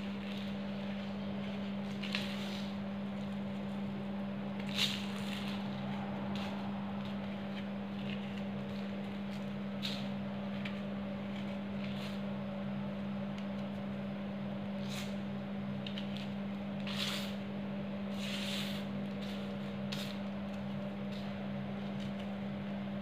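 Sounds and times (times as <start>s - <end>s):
steady low hum: 0.0s - 23.0s
hand crunching chalk powder: 4.6s - 12.2s, 15.8s - 17.4s, 18.1s - 21.4s.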